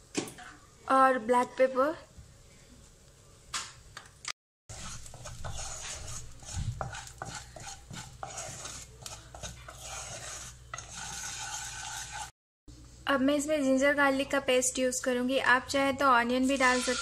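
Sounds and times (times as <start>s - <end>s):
spatula scraping pan: 4.7s - 12.4s, 16.4s - 17.0s.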